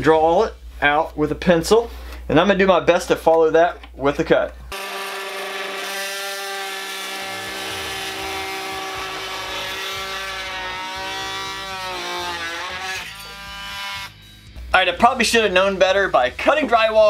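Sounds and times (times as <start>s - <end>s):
oscillating multi-tool cutting drywall: 4.7s - 14.2s.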